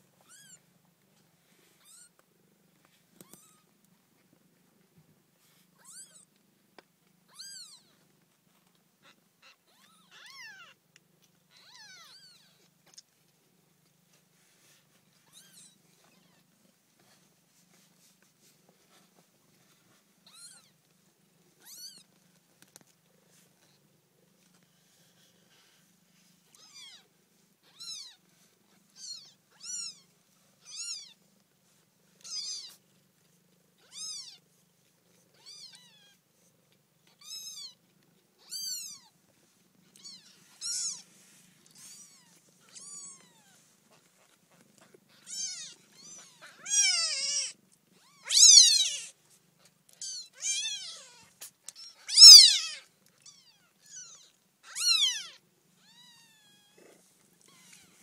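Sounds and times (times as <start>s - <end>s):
kittens mewing: 39.9s - 41.1s, 41.7s - 49.2s, 50.0s - 58.0s.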